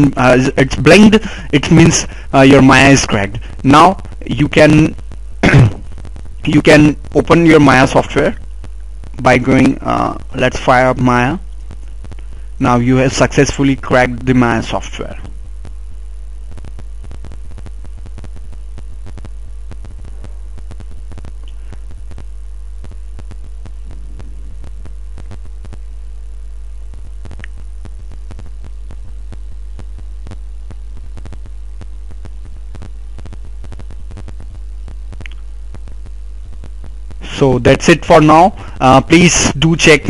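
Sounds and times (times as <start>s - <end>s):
steady low hum: 0.0s - 40.0s
faint scattered clicks: 27.0s - 27.6s, 35.1s - 35.8s.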